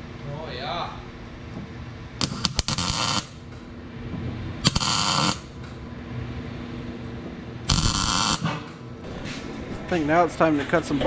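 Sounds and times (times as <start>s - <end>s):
welding arc bursts: 2.2s - 3.5s, 4.6s - 5.6s, 7.7s - 8.8s.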